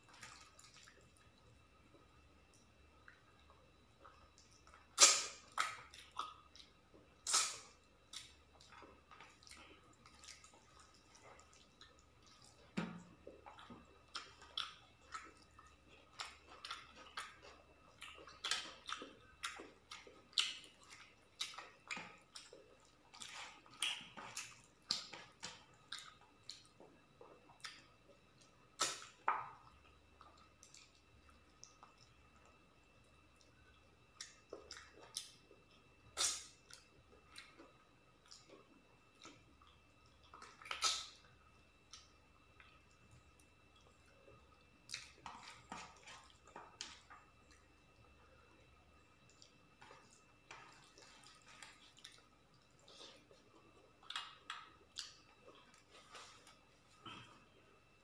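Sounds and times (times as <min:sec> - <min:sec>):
wet chewing and lip smacks: 0:33.4 - 0:57.2.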